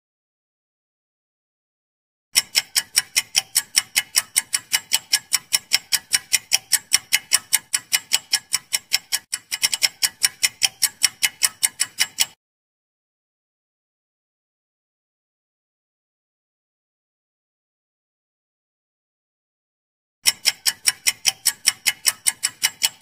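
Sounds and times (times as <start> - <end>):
rapid clock ticking: 2.4 - 12.4, 20.2 - 23.0.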